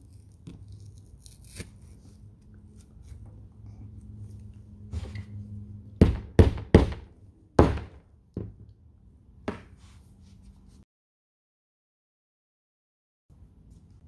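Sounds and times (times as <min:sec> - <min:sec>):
rubber mallet knocking plastic: 0:06.0 - 0:08.7.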